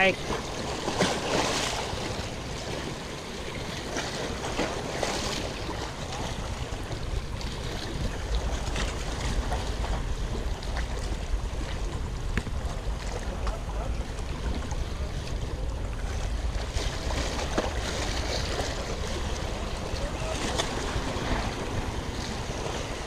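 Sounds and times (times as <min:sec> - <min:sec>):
waves washing against rocks: 0:00.0 - 0:23.0
wind buffeting microphone: 0:00.0 - 0:23.0.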